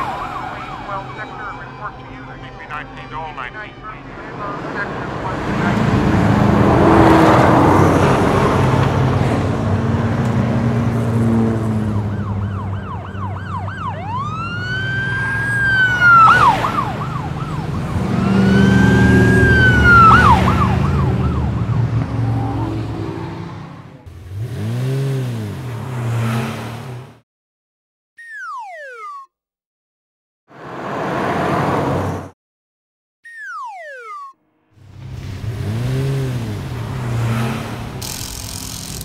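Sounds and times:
police siren wailing: 0:00.0 - 0:09.9, 0:10.6 - 0:24.0, 0:33.3 - 0:34.4
car engines running: 0:00.0 - 0:27.2, 0:34.8 - 0:39.0.

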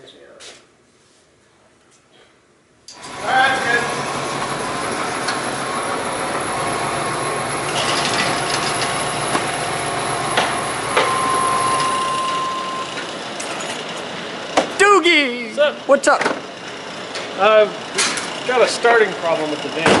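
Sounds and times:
steady high tone: 0:02.9 - 0:13.2
van engine idling: 0:03.0 - 0:12.9.

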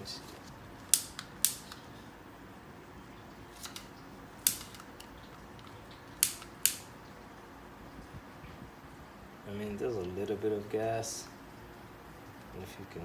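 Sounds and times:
torch lighter ignition clicking: 0:00.9 - 0:01.8, 0:03.6 - 0:05.1, 0:06.2 - 0:06.9.

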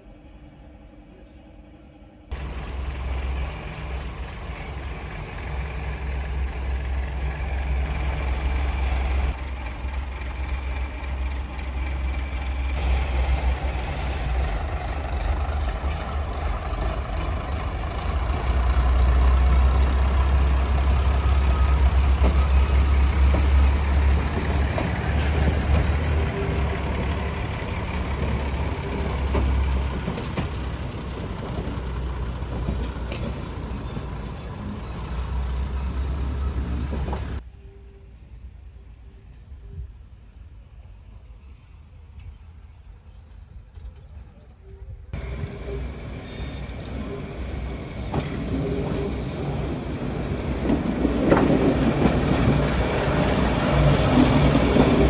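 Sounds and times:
diesel train engine rumble: 0:00.0 - 0:55.0
brief high squeals: 0:12.8 - 0:13.8.

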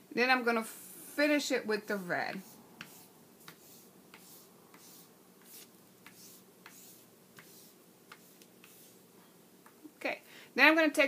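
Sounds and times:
pastel scratching on paper: 0:01.8 - 0:09.0.

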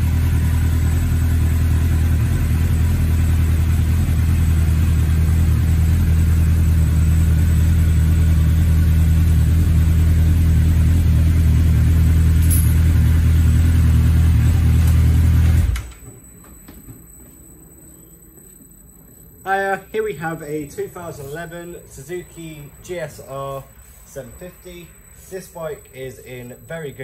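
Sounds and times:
motorcycle engine idling: 0:00.0 - 0:15.6.

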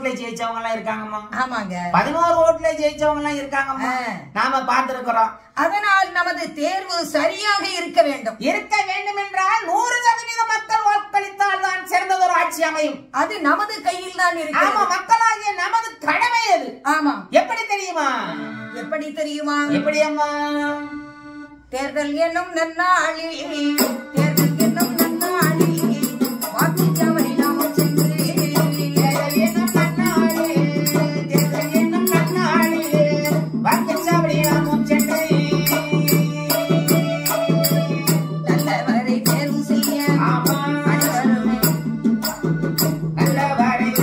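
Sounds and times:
woman singing: 0:21.7 - 0:42.4, 0:43.2 - 0:44.0
man singing: 0:21.8 - 0:44.0.

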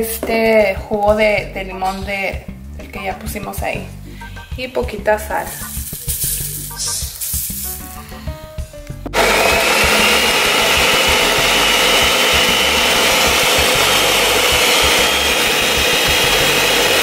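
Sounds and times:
blender running: 0:09.2 - 0:17.0.

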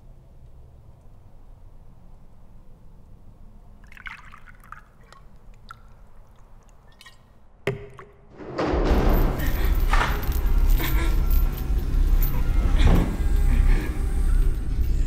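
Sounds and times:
liquid drips: 0:03.8 - 0:08.3.

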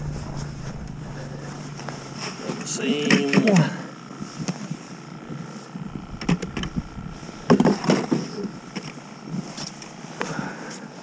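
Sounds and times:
low rumble: 0:00.0 - 0:02.9, 0:05.8 - 0:08.8
gear knocking in plastic sled: 0:05.8 - 0:08.9.

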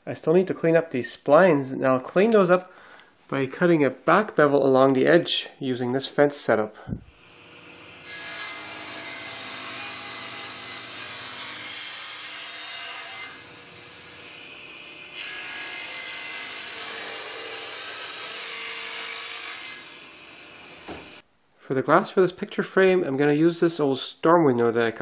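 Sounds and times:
table saw cutting wood: 0:07.2 - 0:21.2.

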